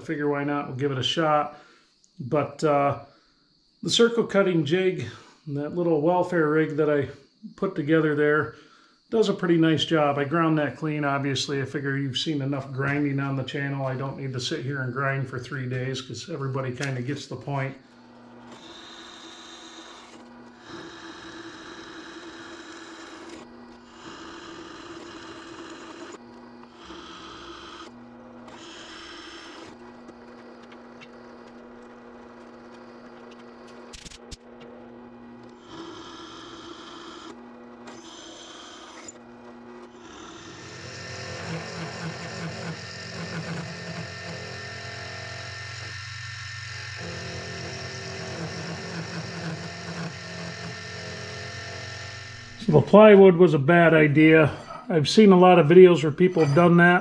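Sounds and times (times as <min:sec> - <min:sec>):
mini mill cutting steel: 0:15.7 - 0:53.2, 0:54.5 - 0:57.0
drill press cutting steel: 0:16.8 - 0:53.2, 0:56.1 - 0:57.0.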